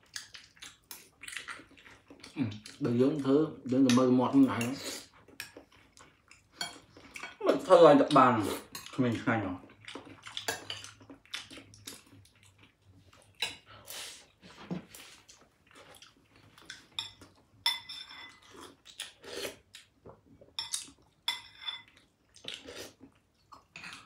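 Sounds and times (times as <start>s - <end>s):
cutlery clinking against plate: 16.9s - 18.5s, 20.6s - 22.0s.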